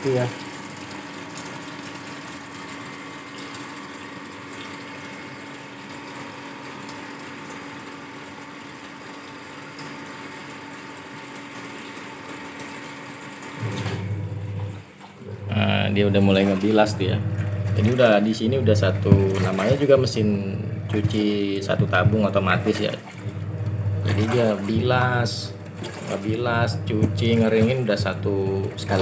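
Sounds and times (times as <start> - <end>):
washing machine motor hum: 0.0 - 29.0
water swishing: 13.6 - 29.0.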